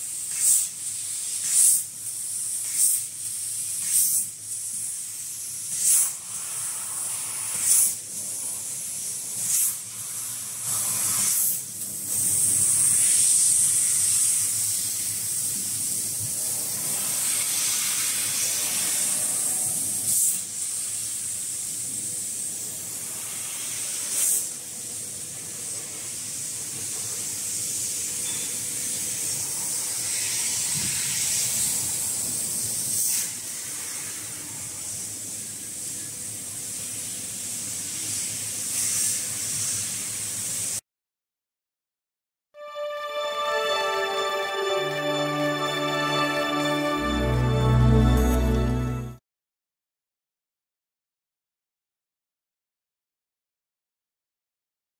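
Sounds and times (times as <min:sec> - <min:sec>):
laser cutter gas jet hissing: 0:00.0 - 0:40.8.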